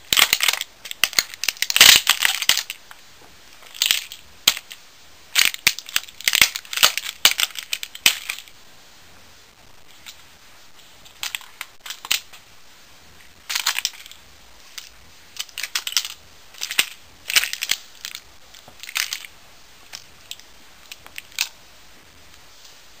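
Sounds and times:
plastic cracking under boots: 0:00.1 - 0:02.9, 0:03.6 - 0:04.8, 0:05.4 - 0:08.5, 0:11.1 - 0:12.4, 0:13.4 - 0:19.3.

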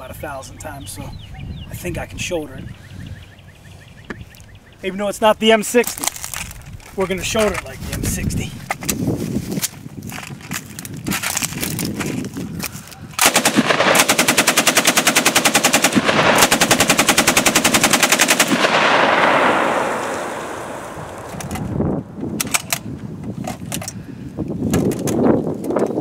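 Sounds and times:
machine gun firing bursts: 0:13.2 - 0:20.0
gunshot echo rolling away: 0:15.9 - 0:22.8.

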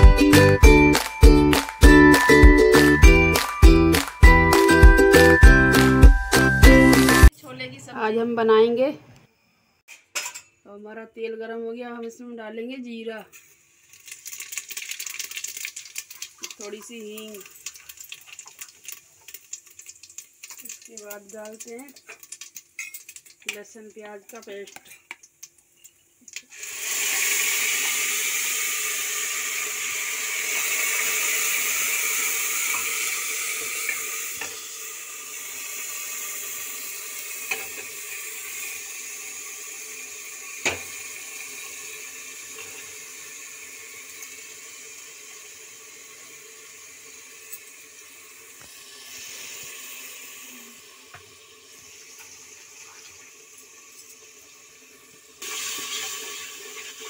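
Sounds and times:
paste sizzling in hot oil: 0:13.3 - 0:57.0.

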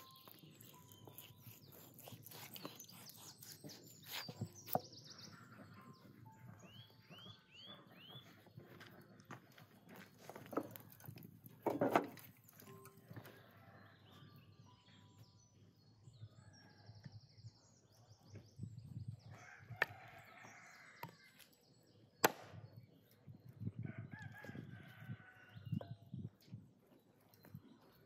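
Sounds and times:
small birds chirping: 0:00.0 - 0:24.5, 0:25.2 - 0:28.0
rooster crowing: 0:23.8 - 0:25.6.

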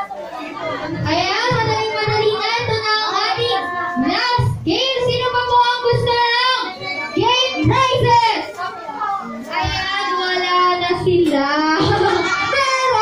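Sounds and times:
child singing: 0:01.0 - 0:08.3.

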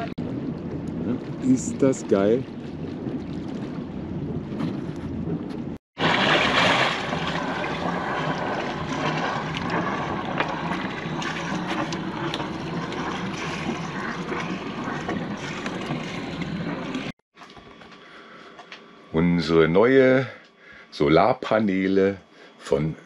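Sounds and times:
wind buffeting microphone: 0:00.0 - 0:17.1
water splashing and sloshing: 0:00.0 - 0:17.5.

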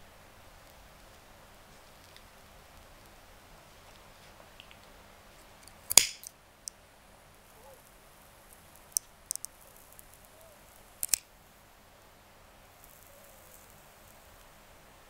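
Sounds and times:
sharp clicks: 0:05.6 - 0:06.3, 0:09.0 - 0:09.6, 0:11.0 - 0:11.2.

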